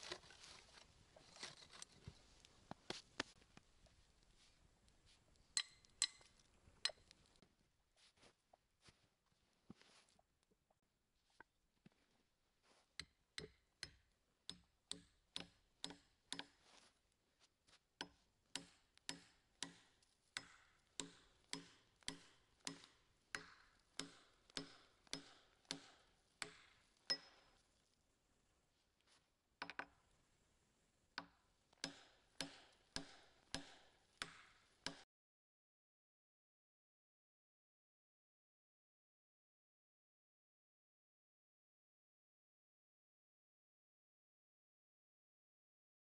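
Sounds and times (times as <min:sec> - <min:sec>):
hand tool striking wood: 0:05.6 - 0:07.0, 0:13.0 - 0:16.6, 0:18.0 - 0:27.5, 0:31.2 - 0:35.0.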